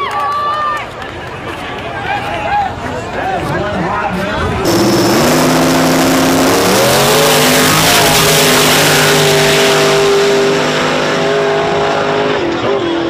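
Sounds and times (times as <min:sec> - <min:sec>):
drag car engines at full throttle: 0:02.7 - 0:13.0.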